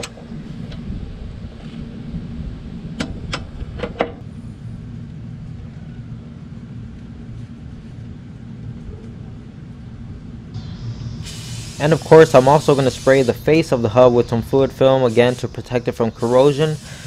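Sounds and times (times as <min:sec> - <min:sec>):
low rumble: 0:00.2 - 0:16.9.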